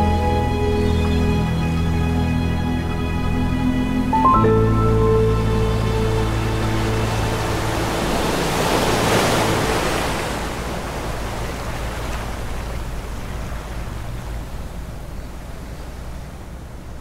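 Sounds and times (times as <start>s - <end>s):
ocean wave washing in: 3.5s - 17.0s.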